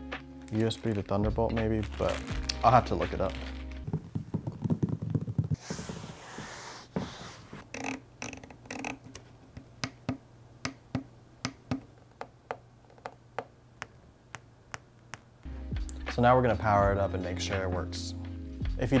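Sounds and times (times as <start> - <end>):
hands tapping on plastic case: 3.9 - 5.6.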